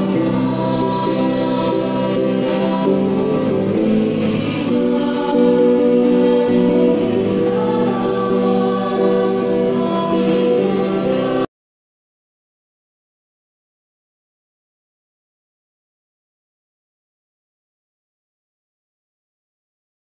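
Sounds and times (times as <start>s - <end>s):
choir singing a slow hymn: 0.0s - 11.5s.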